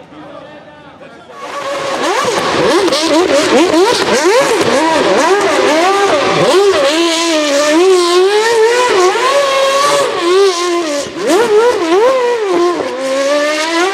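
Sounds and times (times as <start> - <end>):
racing car engine revving: 1.3 - 13.9.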